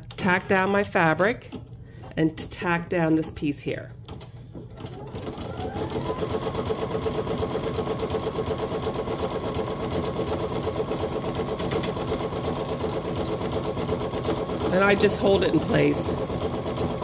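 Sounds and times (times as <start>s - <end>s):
embroidery machine stitching: 4.6s - 17.0s.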